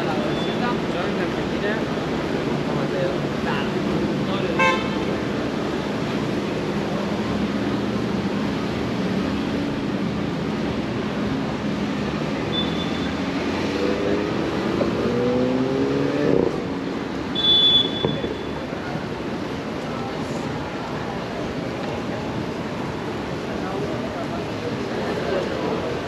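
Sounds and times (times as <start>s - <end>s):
street traffic: 0.0s - 26.0s
short high-pitched beep: 12.5s - 13.1s
vehicle engine accelerating: 13.2s - 16.8s.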